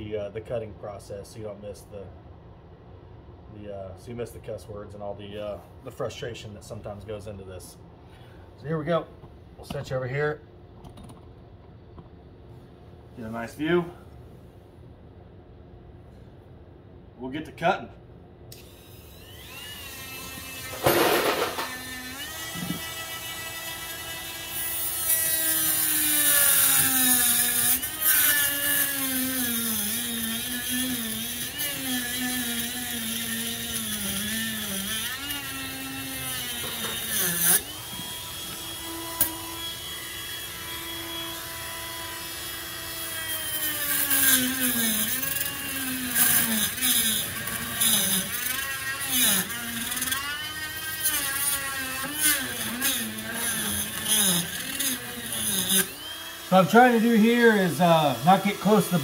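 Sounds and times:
rotary tool whining: 18.5 - 59.0.

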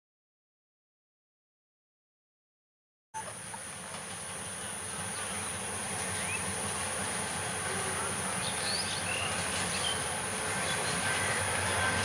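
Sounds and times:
locomotive engine rumbling: 3.2 - 12.0
birds chirping: 7.8 - 12.0.

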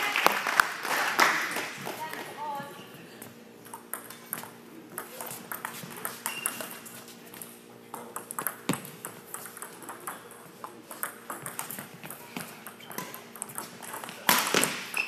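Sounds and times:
low hum of hall: 0.0 - 15.0
shoes squeaking on court floor: 2.0 - 7.6, 8.4 - 15.0
rackets hitting shuttlecock: 8.0 - 15.0.

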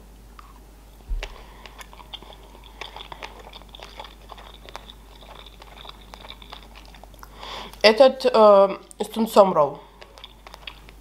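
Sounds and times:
close chewing crackles: 0.4 - 8.2, 8.8 - 11.0
low thump: 1.1 - 1.4.

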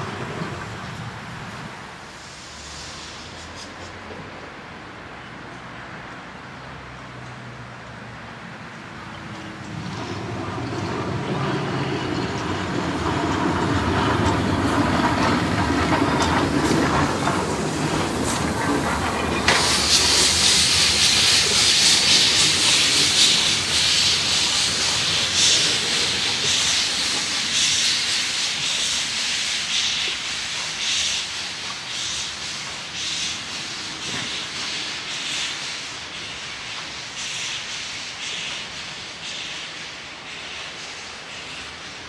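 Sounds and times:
loud hiss of steam: 0.0 - 4.3, 9.3 - 42.0
steam locomotive exhaust beats: 9.4 - 42.0.

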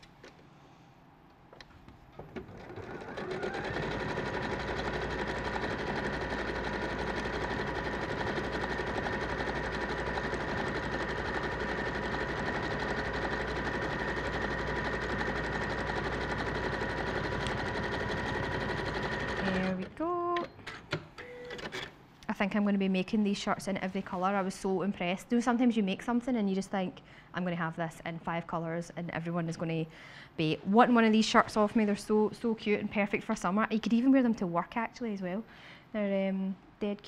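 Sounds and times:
sewing machine running: 2.3 - 19.9.

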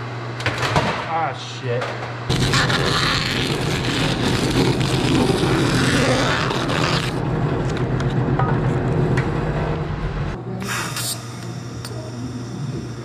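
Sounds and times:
saw cutting through rubber: 2.3 - 7.2.

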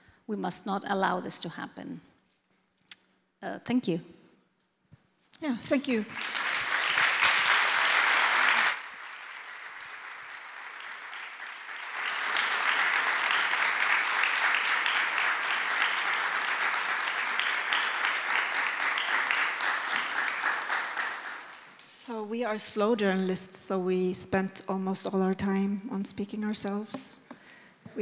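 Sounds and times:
audience applauding: 5.8 - 21.9.

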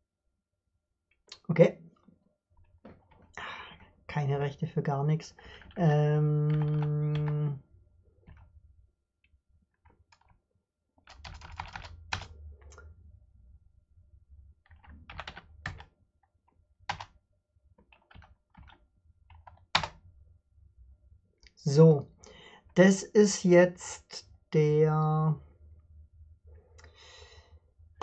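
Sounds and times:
man's voice holding a note: 1.4 - 1.8, 4.1 - 7.6, 21.6 - 22.0, 22.8 - 25.4
typing on computer keyboard: 5.4 - 7.6, 11.0 - 12.8, 14.7 - 15.9, 16.9 - 17.1, 17.8 - 20.0.

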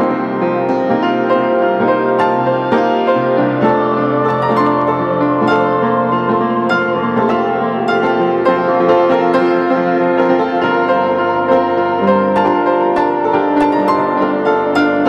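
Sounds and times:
plucked instrumental melody: 0.0 - 15.0.

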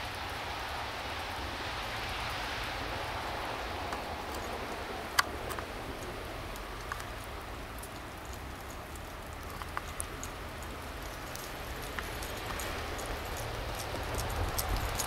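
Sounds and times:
soft outdoor hiss: 0.0 - 15.0
light ticks: 3.9 - 15.0.

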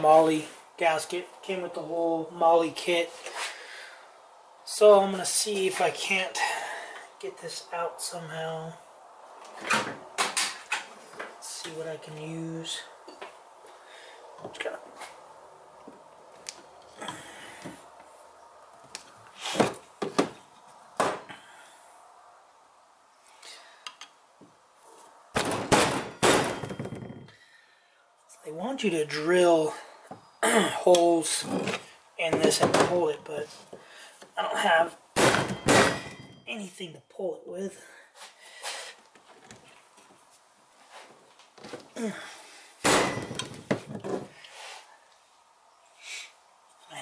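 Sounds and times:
sharp knocks: 25.4 - 27.3, 35.2 - 36.5.

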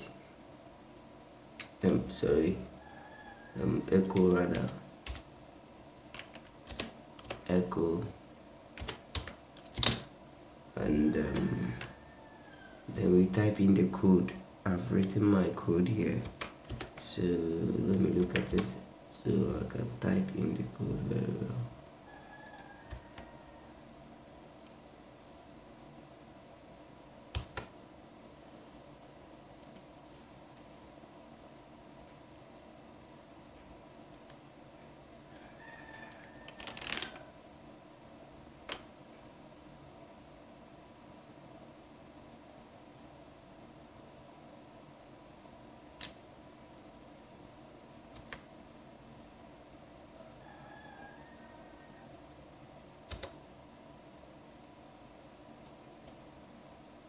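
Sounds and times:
constant high tone: 0.0 - 57.0
insects chirping: 0.0 - 57.0
computer key clicks: 1.6 - 2.0, 8.8 - 10.1, 27.4 - 27.7, 53.1 - 53.4.

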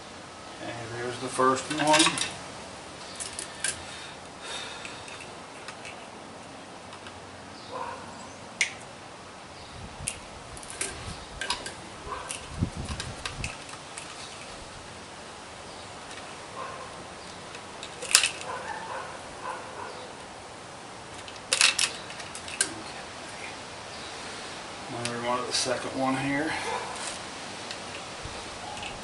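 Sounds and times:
background hiss: 0.0 - 29.0
wire cutters clicking and snipping: 1.6 - 2.4, 17.2 - 18.8, 21.1 - 23.0.

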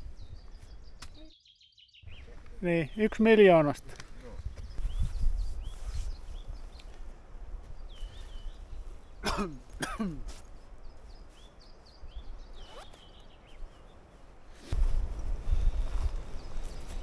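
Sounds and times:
small birds chirping faintly: 0.0 - 17.0
man clearing his throat: 9.2 - 10.3.

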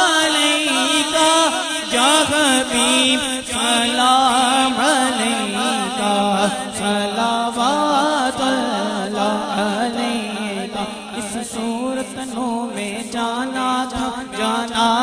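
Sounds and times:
man singing through microphone: 0.0 - 15.0.

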